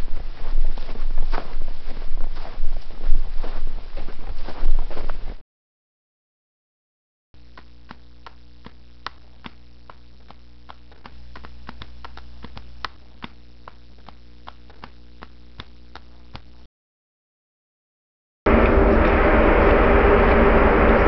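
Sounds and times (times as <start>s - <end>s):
steady low hum: 0.0s - 5.4s, 7.4s - 16.7s, 18.5s - 21.0s
faint irregular clicks: 7.4s - 16.6s.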